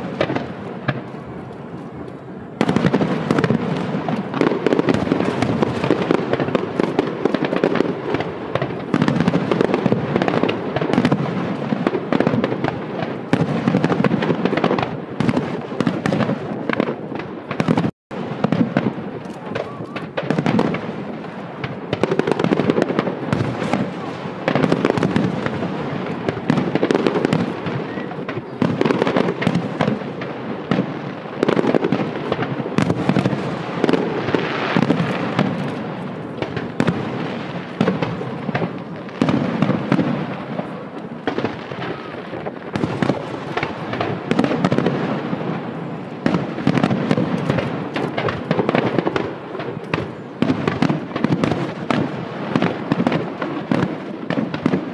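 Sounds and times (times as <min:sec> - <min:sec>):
fireworks bursting: 0:00.0 - 0:54.9.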